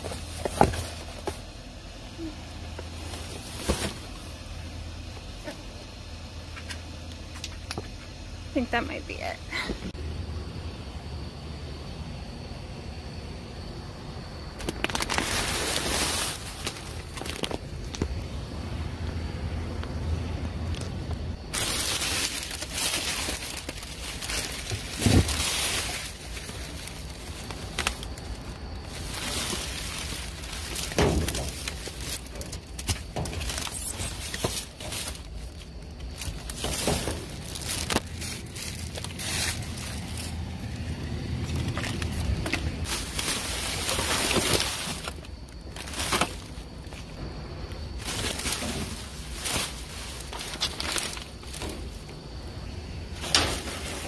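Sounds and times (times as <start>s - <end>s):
plastic bags rustling: 2.2s - 4.5s, 14.6s - 18.3s, 20.6s - 47.2s, 47.8s - 54.0s.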